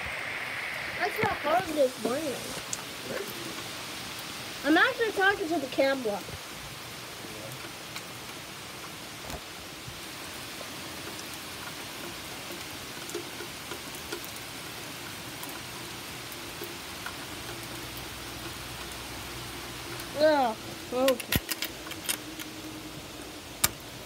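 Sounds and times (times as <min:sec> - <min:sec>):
heavy rain on wooden deck: 0:00.0 - 0:24.0
water drips tapping: 0:10.5 - 0:20.5.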